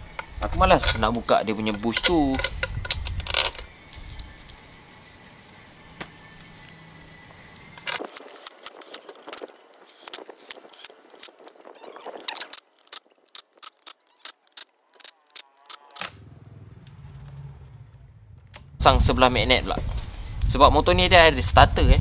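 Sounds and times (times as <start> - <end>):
metallic clicking of hand tools: 0.2 - 4.7.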